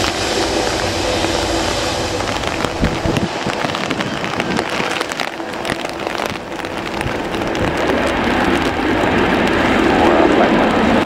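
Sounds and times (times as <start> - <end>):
heavy rain on an umbrella: 0.0 - 11.0
jet engines hum: 0.0 - 11.0.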